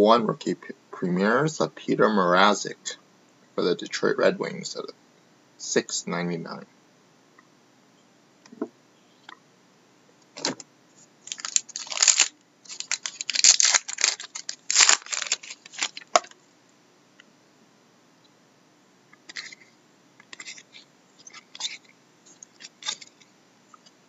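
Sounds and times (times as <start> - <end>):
wrapper crackling: 11.2 - 16.3.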